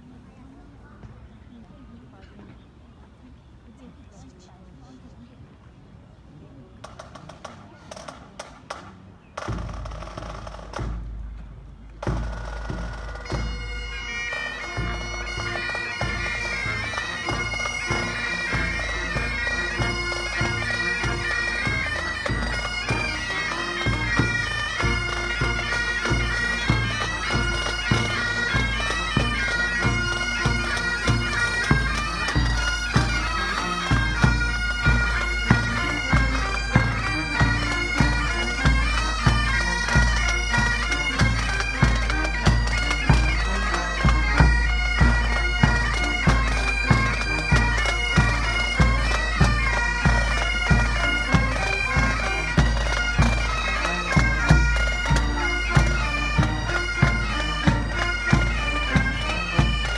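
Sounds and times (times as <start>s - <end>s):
drums beating: 9.4s - 59.9s
bagpipe drones: 12.1s - 59.9s
bagpipe chanters playing melody: 12.2s - 59.9s.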